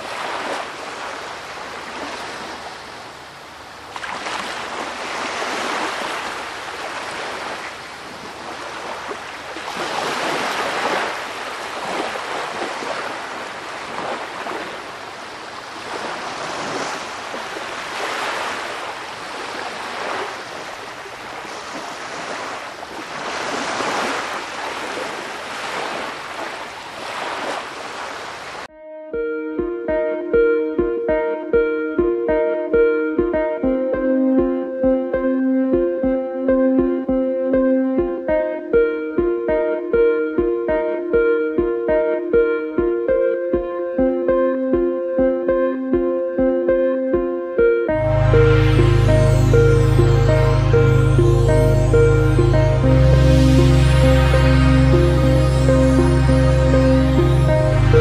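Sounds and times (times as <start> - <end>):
wind rushing through palm fronds: 0.0 - 28.7.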